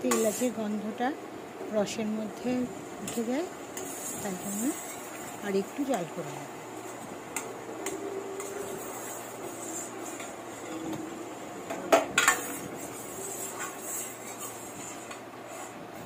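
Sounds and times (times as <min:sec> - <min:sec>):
ladle scraping and clinking pan: 0:00.0 - 0:00.5, 0:03.0 - 0:06.0, 0:06.8 - 0:15.8.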